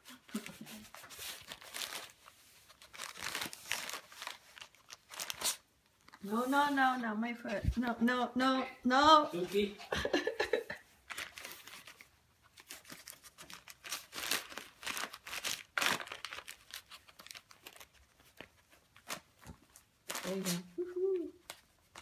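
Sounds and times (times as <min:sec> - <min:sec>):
wrapping paper crinkling and tearing: 0:00.0 - 0:07.0, 0:11.1 - 0:22.0.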